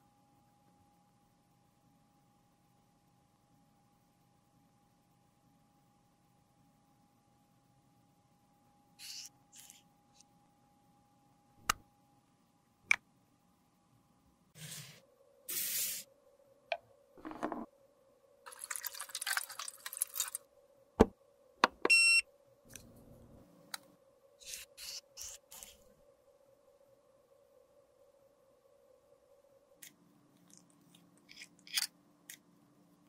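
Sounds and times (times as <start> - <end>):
short scraping hisses: 14.6 - 16.1.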